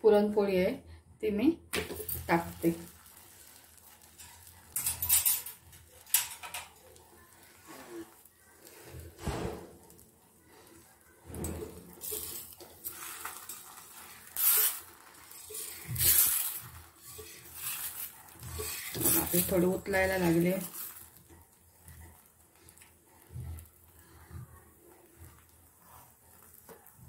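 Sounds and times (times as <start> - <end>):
metal utensils clinking and scraping: 1.8 - 22.0.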